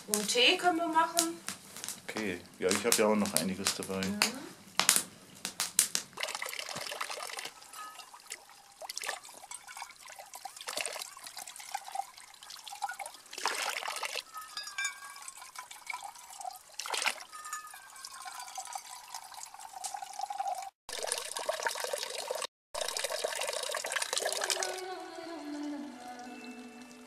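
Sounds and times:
water trickling into a metal cup: 6.2s - 27.0s.

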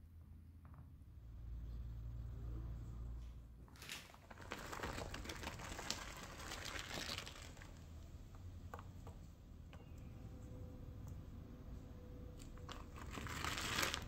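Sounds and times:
plastic bag crinkling: 3.8s - 8.0s, 12.4s - 14.0s.

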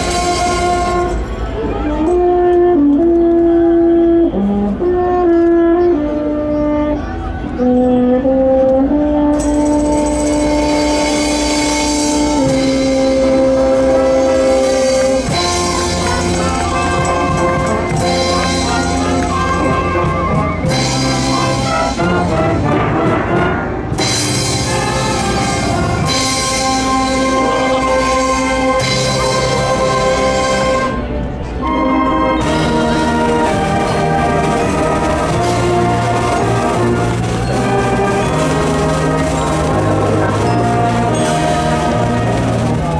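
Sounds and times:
wind band playing: 0.0s - 42.9s
drum kit: 10.0s - 30.6s.

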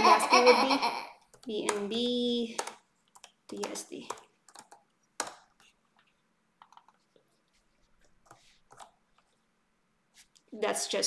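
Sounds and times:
computer keyboard keystrokes: 1.3s - 5.7s, 6.6s - 7.0s, 8.2s - 9.0s.

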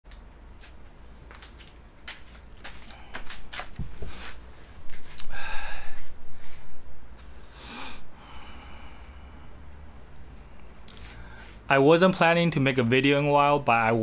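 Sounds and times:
loud breathy nose sounds: 7.4s - 9.4s.

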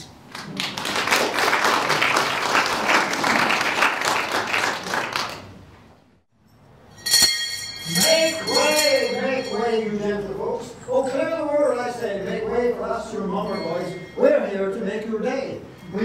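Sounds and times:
audience applauding: 0.2s - 5.7s.

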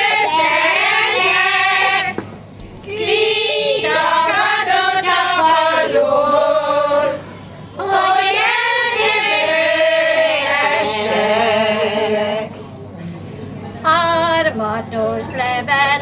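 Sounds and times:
women's choir singing folk song: 0.0s - 12.6s.

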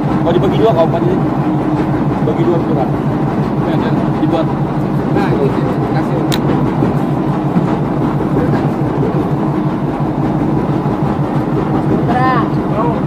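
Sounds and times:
boat engine hum: 0.0s - 13.0s.

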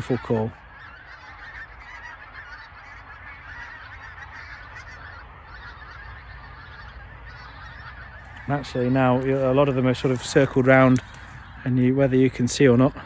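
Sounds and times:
geese calling in flight: 0.0s - 13.0s.

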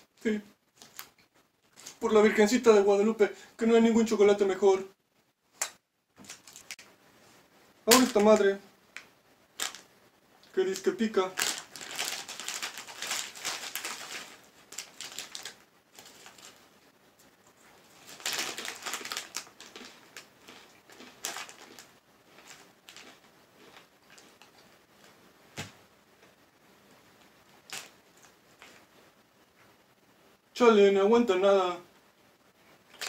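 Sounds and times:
foil bag crinkling: 0.2s - 2.1s, 6.2s - 6.9s, 7.9s - 8.6s, 9.6s - 9.9s, 10.5s - 16.7s, 17.8s - 24.6s, 27.6s - 28.8s
chips crunching: 7.9s - 8.4s, 10.7s - 16.6s, 17.5s - 25.2s, 27.6s - 28.8s.

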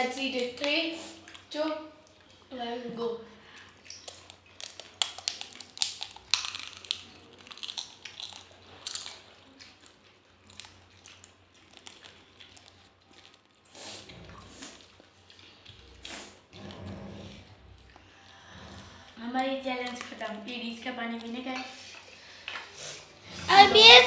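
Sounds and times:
crunchy food chewing: 3.5s - 18.4s.

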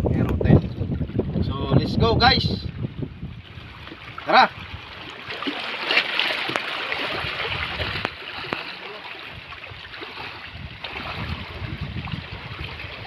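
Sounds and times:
wind buffeting microphone: 0.0s - 5.4s, 6.5s - 13.0s
water sloshing around wading legs: 2.8s - 13.0s.

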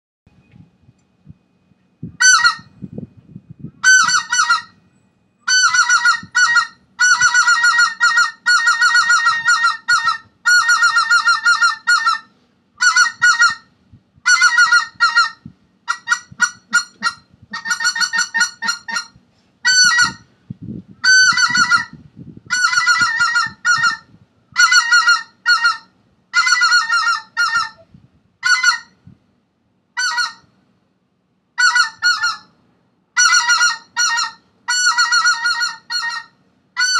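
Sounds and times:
goose yelping calls: 2.2s - 2.7s, 3.8s - 4.7s, 5.5s - 13.6s, 14.2s - 20.2s, 21.0s - 29.0s, 30.0s - 30.5s, 31.6s - 32.5s, 33.2s - 36.9s.

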